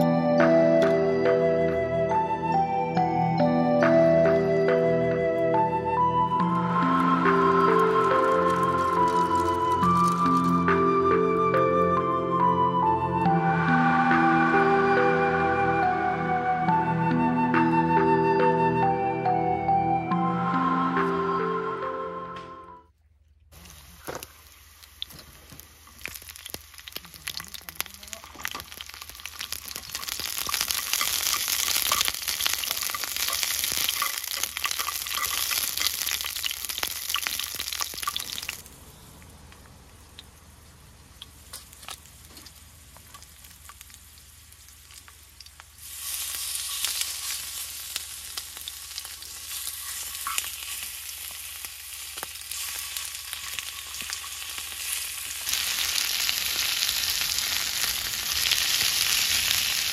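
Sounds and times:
oil sizzling and crackling: 6.8s - 10.8s, 23.5s - 38.8s, 39.8s - 59.9s.

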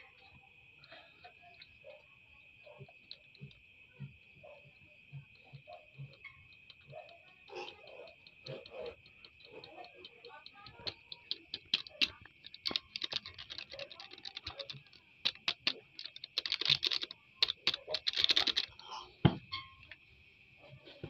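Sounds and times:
night insects chirring: 0.0s - 20.8s
plastic clicks and crinkles: 7.8s - 18.8s.

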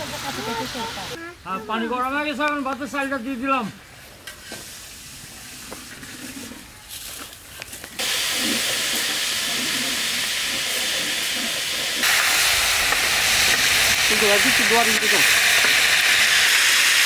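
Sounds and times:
fish frying on a griddle: 4.1s - 17.0s.

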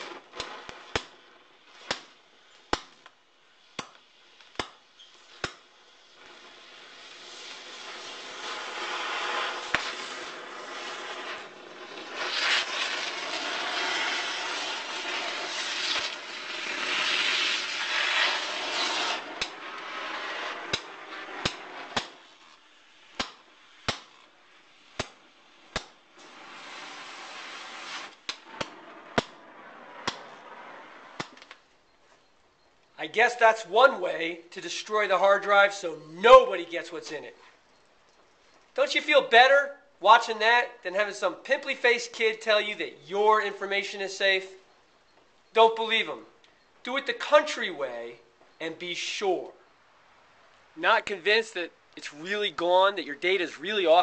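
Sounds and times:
rushing flame hiss: 0.0s - 2.8s, 5.2s - 31.4s
sharp pops and crackles: 0.0s - 33.0s.

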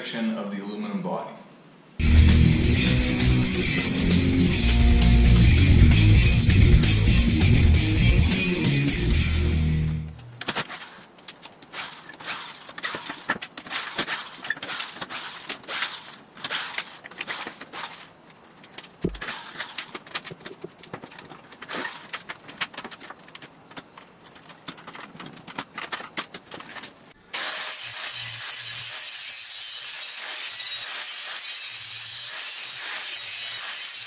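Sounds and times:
drill-driver backing out screws: 10.4s - 18.1s, 19.0s - 23.8s
wooden pieces being handled: 10.4s - 27.2s.

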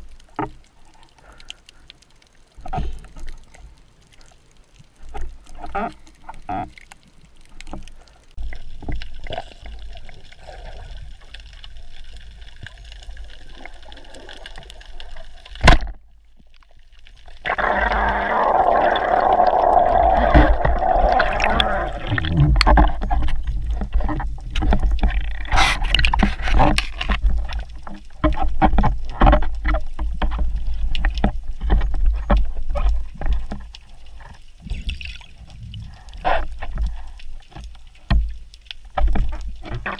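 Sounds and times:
muffled underwater water noise: 0.0s - 39.9s
rushing water: 0.0s - 39.9s.

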